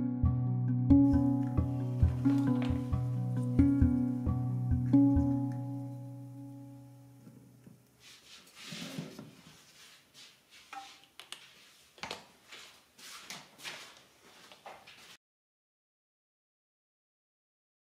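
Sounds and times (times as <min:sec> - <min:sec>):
background music chord: 0:00.0 - 0:07.6.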